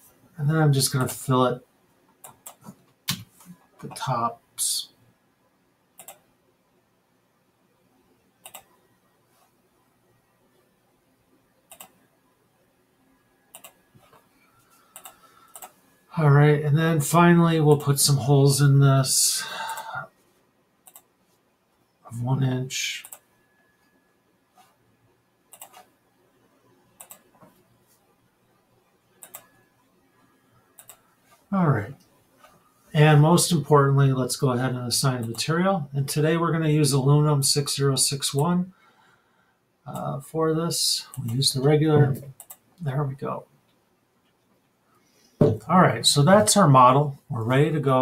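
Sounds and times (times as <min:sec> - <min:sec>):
computer mouse clicks: 0:02.2 - 0:03.6, 0:06.0 - 0:06.3, 0:08.4 - 0:08.8, 0:11.7 - 0:12.0, 0:13.5 - 0:14.3, 0:14.9 - 0:15.8, 0:20.8 - 0:21.1, 0:23.0 - 0:23.3, 0:25.5 - 0:25.9, 0:27.0 - 0:27.6, 0:29.2 - 0:29.7, 0:30.8 - 0:31.0, 0:42.3 - 0:42.6
faint hiss: 0:13.6 - 0:21.0.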